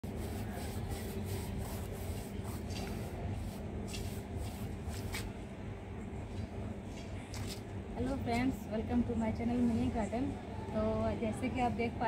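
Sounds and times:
paintbrush scrubbing on brick: 0:00.0 - 0:05.4.

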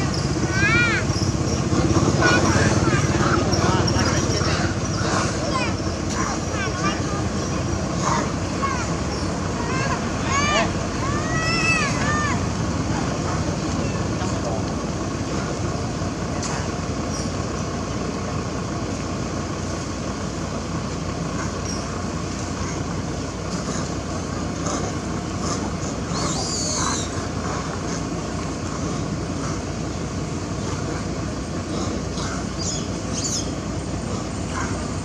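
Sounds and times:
low outdoor rumble: 0:00.0 - 0:35.0.

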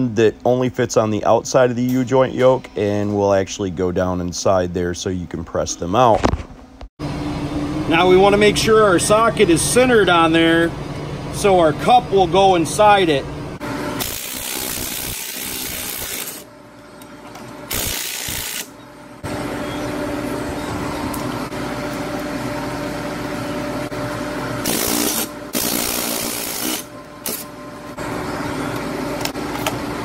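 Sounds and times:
power tool whirring: 0:14.0 - 0:16.5, 0:17.7 - 0:18.8, 0:24.6 - 0:27.5.

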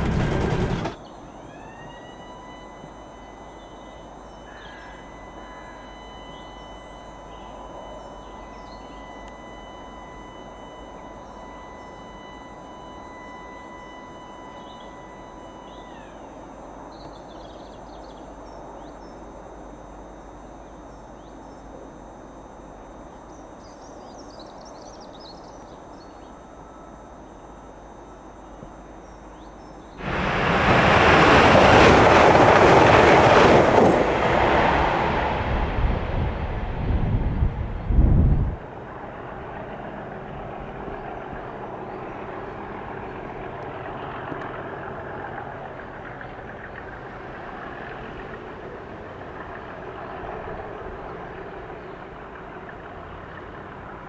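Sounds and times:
steady high tone: 0:00.0 - 0:24.2
faint bird chirps: 0:01.0 - 0:19.4, 0:22.9 - 0:27.6, 0:28.3 - 0:30.0
train passing at speed: 0:30.0 - 0:41.9.

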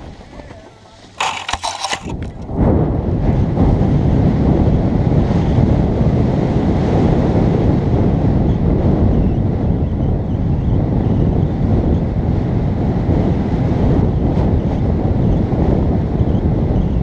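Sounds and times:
wind buffeting microphone: 0:00.0 - 0:17.0
rustling: 0:00.4 - 0:02.4
sharp clicks: 0:01.1 - 0:02.4.

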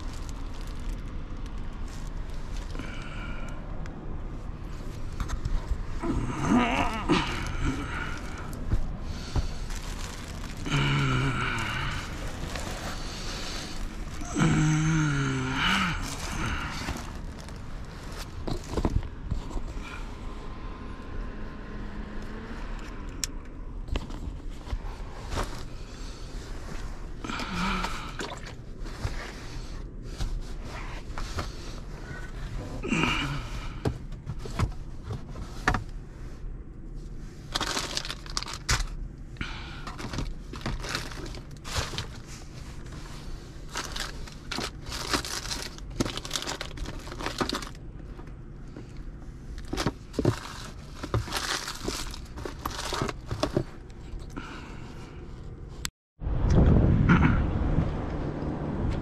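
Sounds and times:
food packaging crinkling: 0:00.0 - 0:02.9, 0:07.3 - 0:18.8, 0:37.5 - 0:39.0, 0:40.0 - 0:42.3, 0:43.7 - 0:47.8, 0:49.6 - 0:53.6
steady low hum: 0:00.0 - 0:21.9
items knocking and scraping: 0:16.1 - 0:19.8, 0:49.6 - 0:53.8.

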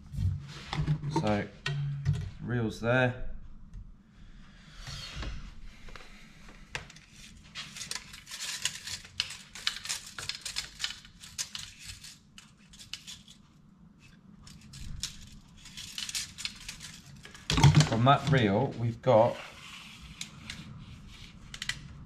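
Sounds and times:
tape measure clicking and rattling: 0:07.6 - 0:13.4, 0:14.4 - 0:17.6.

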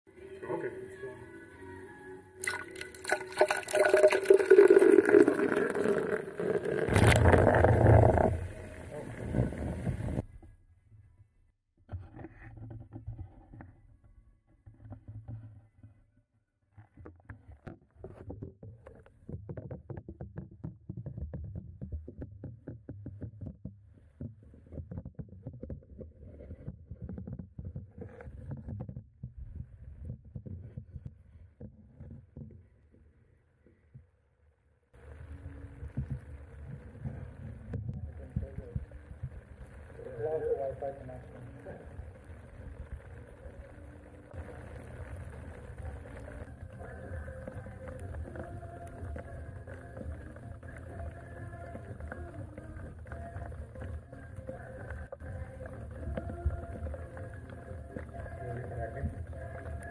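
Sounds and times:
beer pouring and fizzing: 0:02.4 - 0:10.2, 0:44.3 - 0:53.6
muffled liquid sloshing and bubbling: 0:02.4 - 0:10.5, 0:35.0 - 0:59.9.

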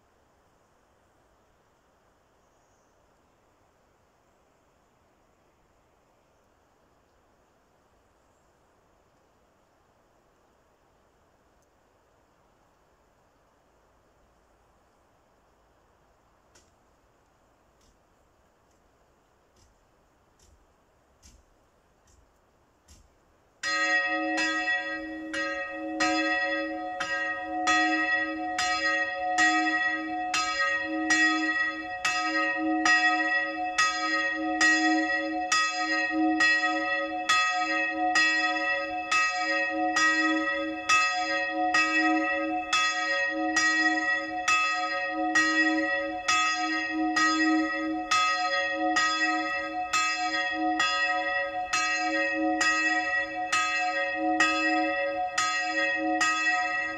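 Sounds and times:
church bell ringing: 0:23.6 - 0:56.9.

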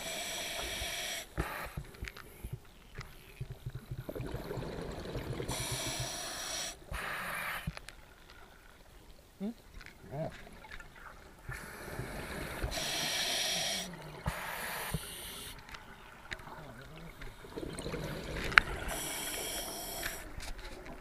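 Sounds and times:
regulator hissing inhalation: 0:00.0 - 0:01.8, 0:05.4 - 0:07.7, 0:11.5 - 0:15.6, 0:18.2 - 0:20.4
bubbles burbling: 0:03.4 - 0:06.1, 0:15.9 - 0:20.1.

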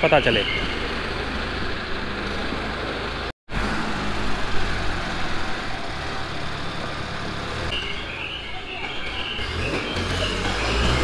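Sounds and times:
diesel crane engine humming: 0:00.0 - 0:08.2.

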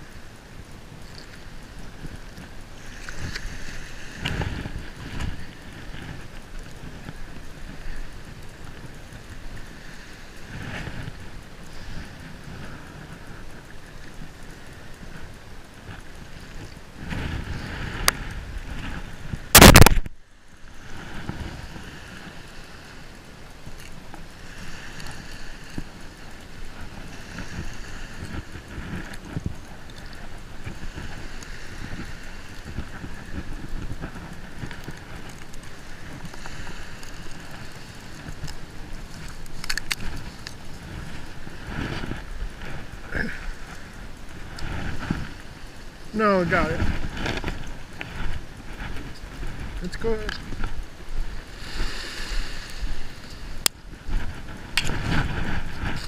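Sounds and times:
surf: 0:00.0 - 0:56.0
wind noise on microphone: 0:00.0 - 0:56.0
rattle of clicks: 0:22.4 - 0:43.0.

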